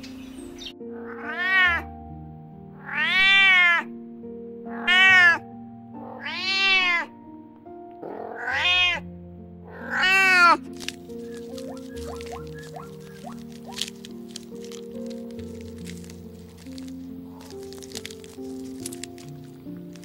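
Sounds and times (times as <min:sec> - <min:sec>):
background music: 0:00.0 - 0:20.0
cat meowing: 0:01.0 - 0:01.9, 0:02.8 - 0:03.9, 0:04.7 - 0:05.4, 0:06.0 - 0:07.1, 0:08.1 - 0:09.0, 0:09.7 - 0:10.6.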